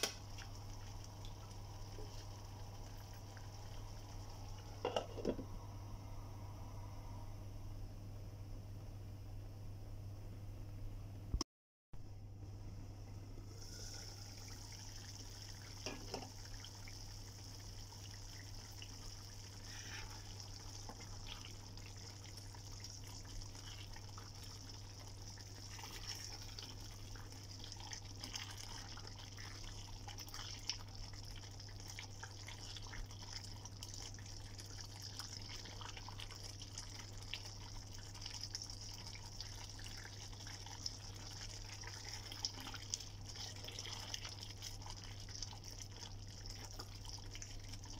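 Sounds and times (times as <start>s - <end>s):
thick sauce bubbling in a pan: 0.0s - 5.4s, 13.4s - 47.9s
low steady hum: 0.0s - 11.4s, 12.0s - 47.9s.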